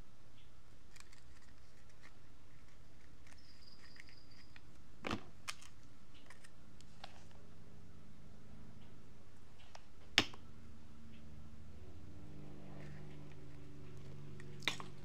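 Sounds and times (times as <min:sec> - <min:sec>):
steady low hum: 0:00.0 - 0:15.0
paper and crafts handling clicks: 0:00.9 - 0:07.2.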